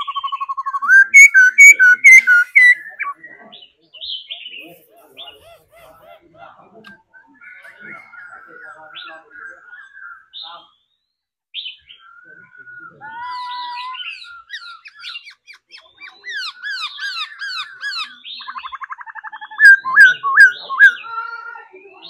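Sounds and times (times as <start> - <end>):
bird singing whistled phrases: 0.0 - 3.4, 16.4 - 21.1.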